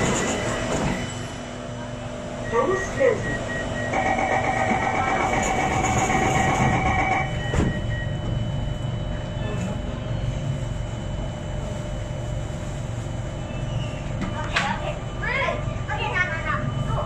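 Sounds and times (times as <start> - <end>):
train low hum: 0.0 - 17.0
high door warning tone: 2.4 - 8.7
train doors shutting knock: 4.0 - 7.9.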